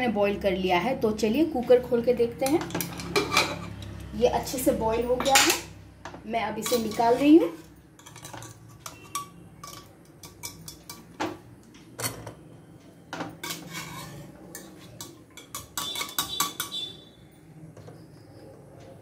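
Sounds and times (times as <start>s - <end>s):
wire strainer scraping metal pot: 6.6s - 11.1s, 13.4s - 17.0s.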